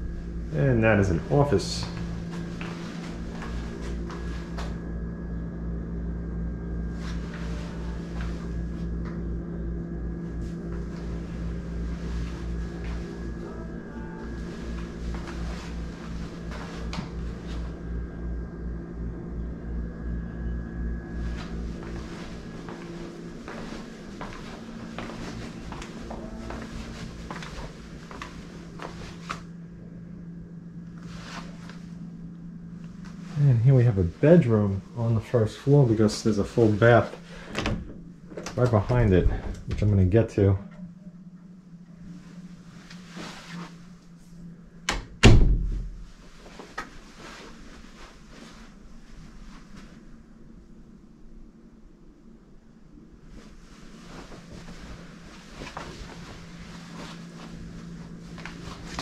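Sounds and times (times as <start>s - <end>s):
steady low hum: 0.0s - 59.0s
soft footsteps: 1.0s - 5.0s, 6.9s - 9.3s, 10.1s - 17.9s, 21.0s - 29.6s, 30.8s - 34.9s, 42.0s - 44.4s, 45.9s - 50.2s, 53.2s - 59.0s.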